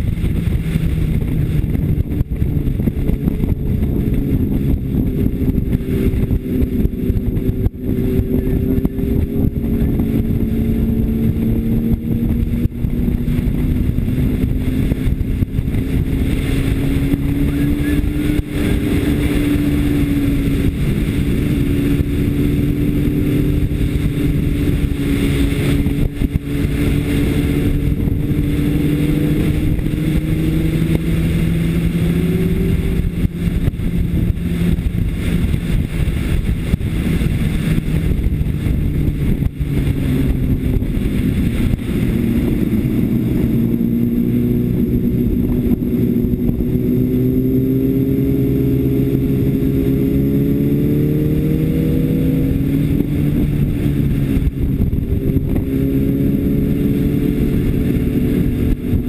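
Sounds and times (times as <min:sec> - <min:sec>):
motorcycle engine running hard: 0:00.0 - 0:59.0
wind rush: 0:00.0 - 0:59.0.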